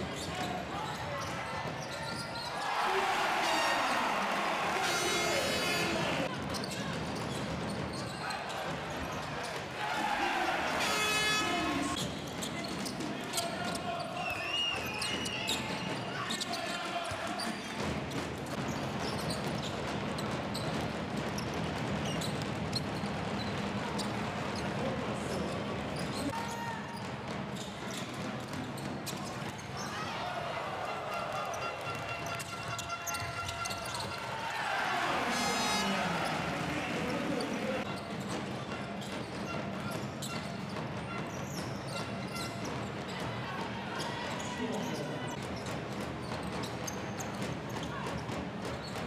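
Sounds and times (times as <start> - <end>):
shoe squeaks: 0.0 - 2.7, 6.5 - 9.6, 10.8 - 17.8, 18.6 - 20.8, 31.4 - 34.4, 37.3 - 49.0
arena crowd din: 0.0 - 49.0
basketball bouncing on court: 14.8 - 29.8, 36.5 - 49.0.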